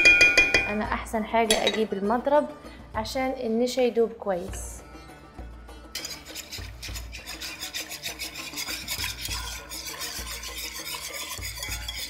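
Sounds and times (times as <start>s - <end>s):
wire whisk scraping a pot: 5.9s - 12.0s.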